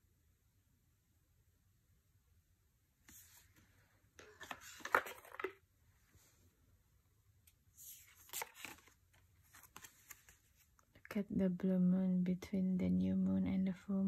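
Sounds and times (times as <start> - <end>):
cards sliding and rustling: 3.1 - 5.6, 7.8 - 10.8.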